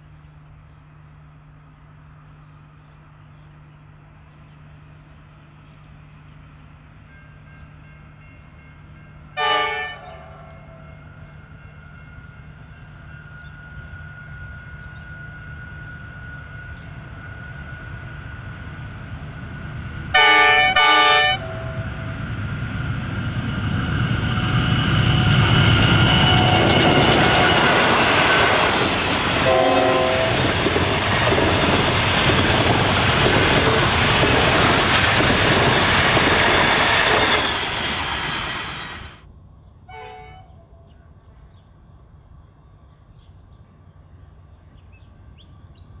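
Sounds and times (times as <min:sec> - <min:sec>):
diesel locomotive engine drone: 0:00.0 - 0:46.0
locomotive horn: 0:07.1 - 0:14.8, 0:20.1 - 0:22.2, 0:29.3 - 0:30.6, 0:39.9 - 0:41.0.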